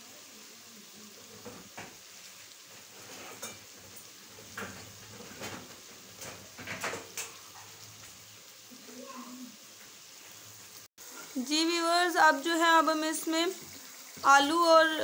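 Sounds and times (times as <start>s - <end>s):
spices sizzling in a pan: 0.0s - 15.0s
wooden spatula scraping a pan: 1.2s - 8.2s.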